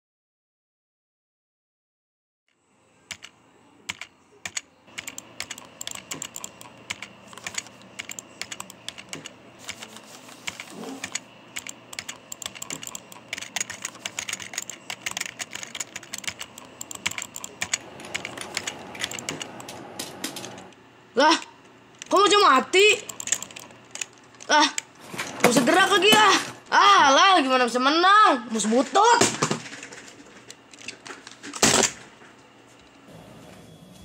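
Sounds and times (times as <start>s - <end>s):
keyboard keys clicking: 3.1s - 3.3s, 3.9s - 20.7s, 23.0s - 24.5s.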